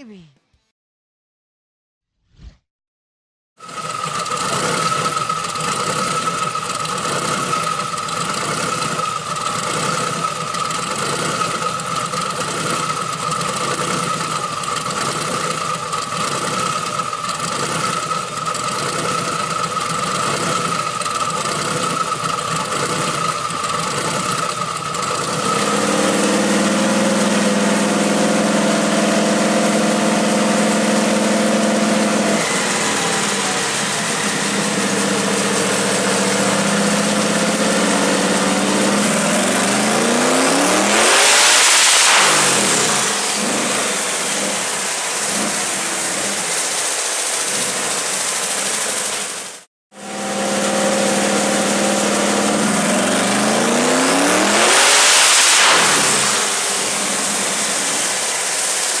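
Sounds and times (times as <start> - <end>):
car engine idling with lope: 3.6 - 41.4, 42.2 - 55.0, 55.8 - 59.0
steady high whine: 41.5 - 49.4, 50.0 - 59.0.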